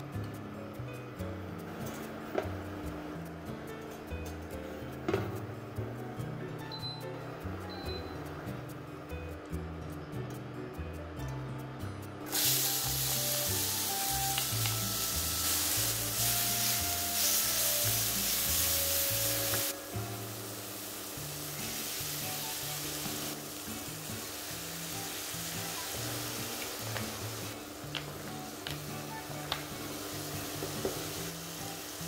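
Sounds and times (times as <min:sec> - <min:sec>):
oil sizzling in a pan: 0:12.3 - 0:32.0.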